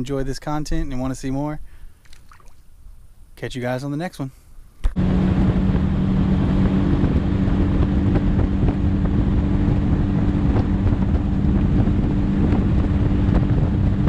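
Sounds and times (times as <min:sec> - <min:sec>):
wind on microphone: 0:04.8 - 0:14.0
outboard motor running: 0:05.0 - 0:14.0.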